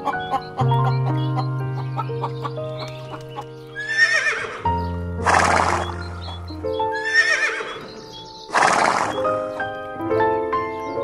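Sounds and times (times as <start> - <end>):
background music: 0.0 - 11.0
horse whinnying: 3.8 - 6.2, 7.0 - 7.9, 8.5 - 9.3.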